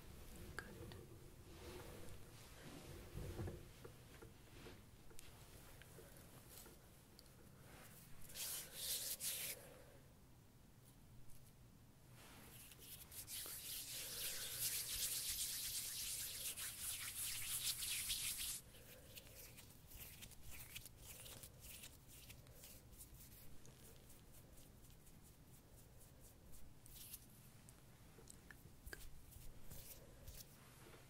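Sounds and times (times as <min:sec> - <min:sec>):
hands rubbing against microphone: 0:07.8 - 0:09.6, 0:12.2 - 0:25.6, 0:28.9 - 0:31.0.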